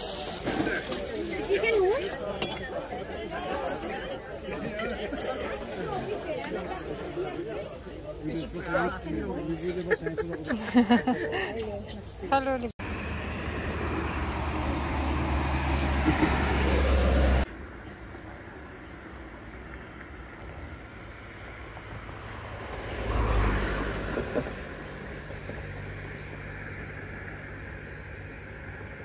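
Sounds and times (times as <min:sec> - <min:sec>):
steady traffic hum: 0:00.0 - 0:29.0
vehicle passing close by: 0:12.8 - 0:17.5, 0:21.2 - 0:29.0.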